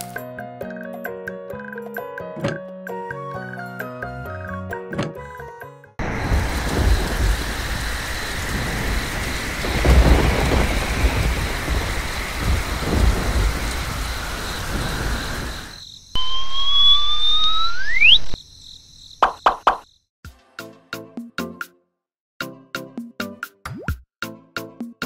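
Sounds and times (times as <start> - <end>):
steady rain: 6.0 - 15.8
thunder rolling: 6.0 - 15.8
rising whistle-like tone: 15.0 - 18.4.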